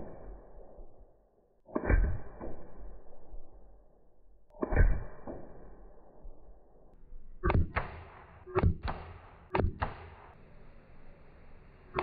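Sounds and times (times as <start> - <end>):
air rifle shots cracking: 7.5 - 10.4.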